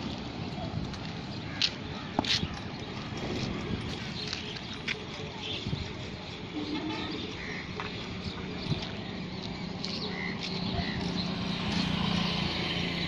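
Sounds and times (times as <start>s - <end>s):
vehicle engine hum: 6.4s - 13.0s.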